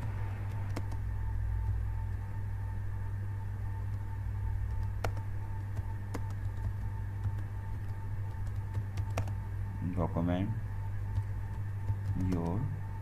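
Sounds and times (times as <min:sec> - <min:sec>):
low hum: 0:00.0 - 0:13.0
keyboard keystrokes: 0:00.5 - 0:01.0, 0:06.1 - 0:09.4, 0:11.2 - 0:12.6.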